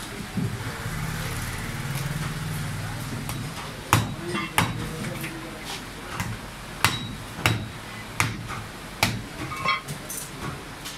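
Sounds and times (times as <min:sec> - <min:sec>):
cleaver chopping meat on wood: 0:03.2 - 0:04.9, 0:06.2 - 0:09.5.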